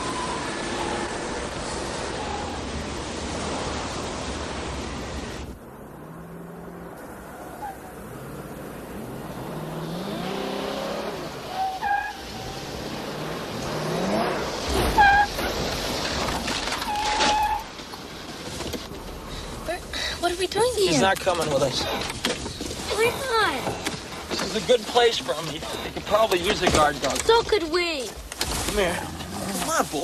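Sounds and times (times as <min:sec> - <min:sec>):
car engine revving: 0:00.0 - 0:16.6
highway road noise: 0:00.0 - 0:30.0
tyre squeals: 0:09.2 - 0:12.8, 0:14.1 - 0:17.8.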